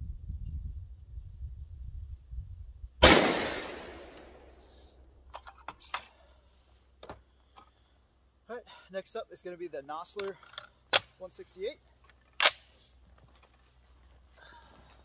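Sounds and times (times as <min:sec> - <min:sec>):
rifle shot: 0:03.0 - 0:04.5
metallic clicks of rifle handling: 0:05.3 - 0:06.2, 0:10.2 - 0:11.2, 0:12.0 - 0:12.8.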